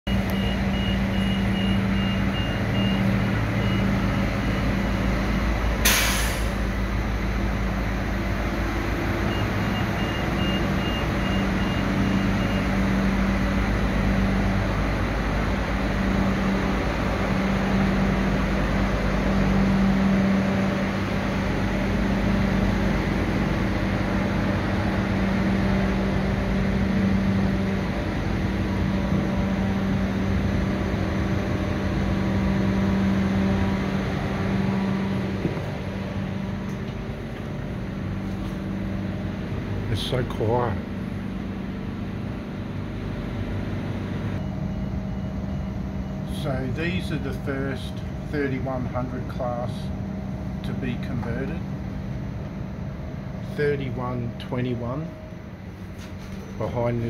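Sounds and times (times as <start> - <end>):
diesel railcar engine idling: 0.1 - 57.0
sharp hiss of air: 5.8 - 6.6.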